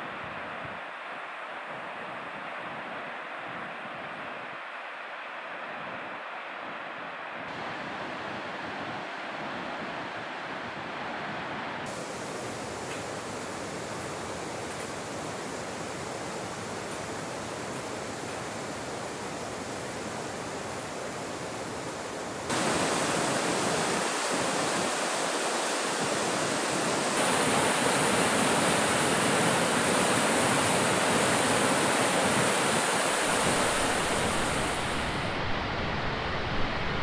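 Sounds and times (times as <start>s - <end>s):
white water rushing over rocks: 7.5s - 37.0s.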